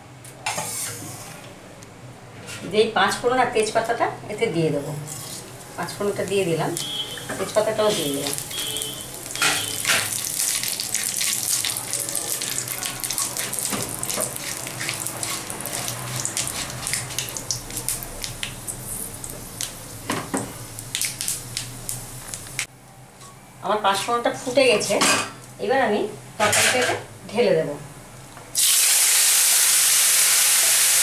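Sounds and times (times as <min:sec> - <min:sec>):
spatula stirring in wok: 0:05.0 - 0:06.2, 0:06.8 - 0:17.7
seeds sizzling in hot oil: 0:05.1 - 0:22.7, 0:28.6 - 0:31.0
seeds crackling and popping: 0:06.7 - 0:19.8, 0:20.8 - 0:22.7.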